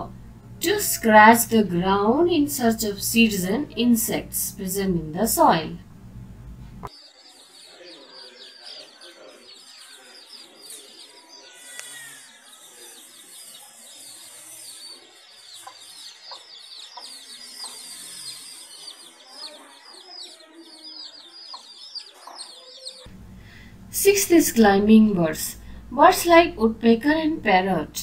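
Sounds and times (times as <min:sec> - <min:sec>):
chicks peeping: 0:06.8 - 0:23.1.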